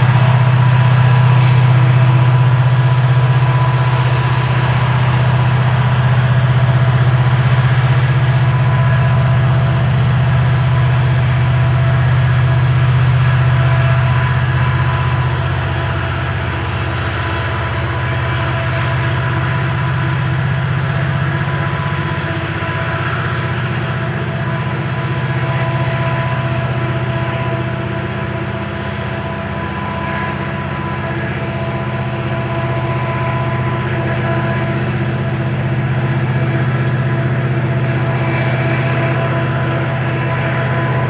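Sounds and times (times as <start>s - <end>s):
diesel locomotive engines droning: 0.0s - 41.0s.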